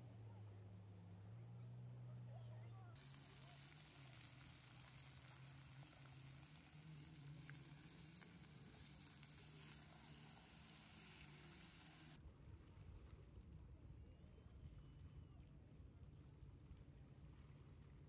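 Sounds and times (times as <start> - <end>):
pork sizzling on grill pan: 3.0 - 12.2.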